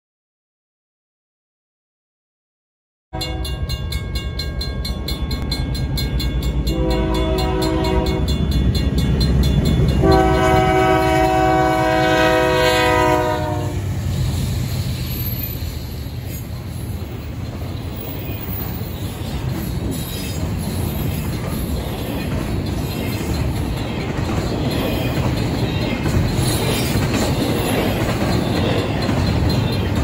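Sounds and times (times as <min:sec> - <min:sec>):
locomotive horn blasts: 0:03.2 - 0:03.6, 0:06.6 - 0:08.4, 0:09.9 - 0:13.9
crossing bell ringing: 0:03.2 - 0:13.7, 0:14.8 - 0:30.0
freight train rumbling past: 0:03.2 - 0:30.0.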